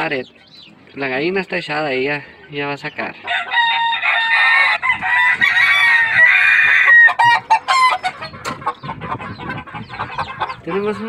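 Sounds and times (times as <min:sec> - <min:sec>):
roosters crowing: 0:03.1 - 0:10.8.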